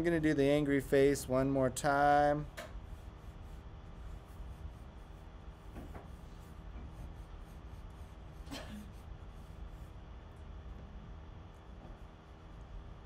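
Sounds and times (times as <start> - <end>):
low hum: 0.0 - 13.0
pencil sketching on paper: 2.8 - 10.0.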